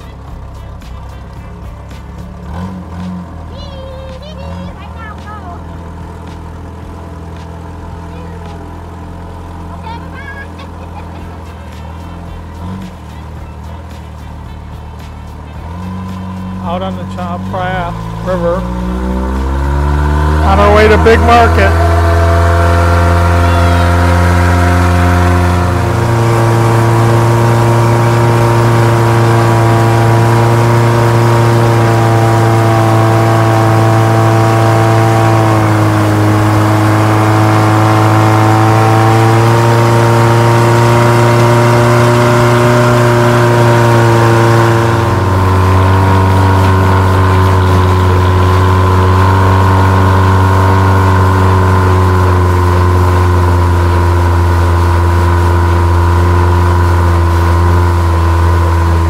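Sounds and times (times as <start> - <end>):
boat engine running: 0.0 - 59.0
water noise: 15.9 - 59.0.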